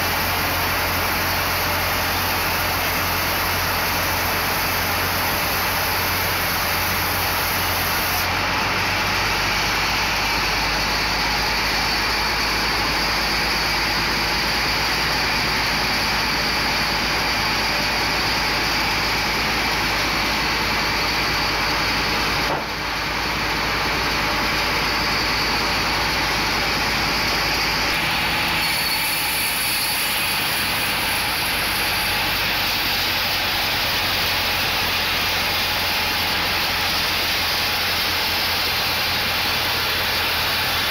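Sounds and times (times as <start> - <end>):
band saw cutting log: 0.0 - 9.7, 26.6 - 40.9.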